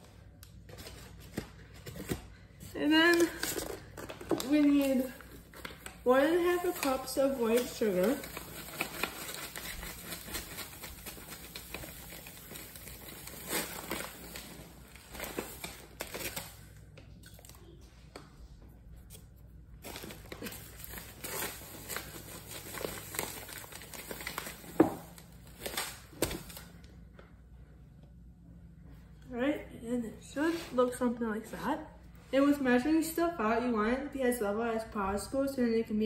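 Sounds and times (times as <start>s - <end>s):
paper bag crinkling: 0.8s - 16.8s, 19.8s - 26.7s.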